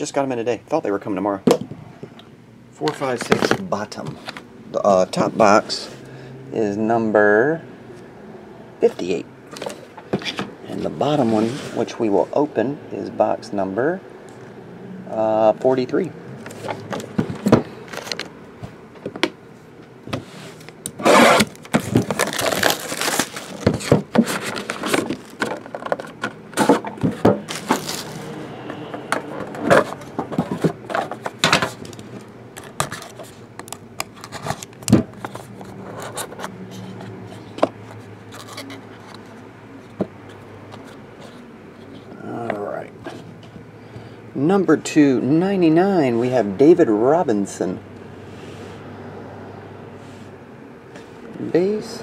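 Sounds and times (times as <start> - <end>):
cardboard boxes scraping and tapping: 20.1 - 39.3
plastic shrink wrap crinkling: 21.4 - 26.2, 27.5 - 28.3.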